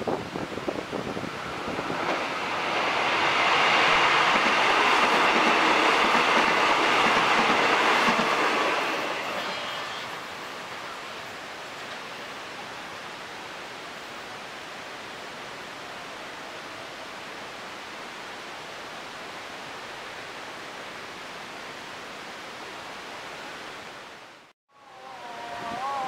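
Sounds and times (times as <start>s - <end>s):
wind on microphone: 0.0s - 8.3s, 25.1s - 26.0s
multi-tone train horn: 7.6s - 10.2s.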